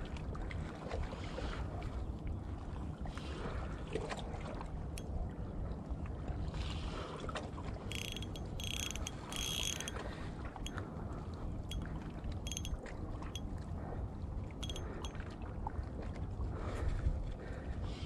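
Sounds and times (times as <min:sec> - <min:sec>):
wind rumble on microphone: 0:00.0 - 0:18.0
fishing reel drag buzzing: 0:07.8 - 0:10.7, 0:12.4 - 0:12.8, 0:14.6 - 0:15.2.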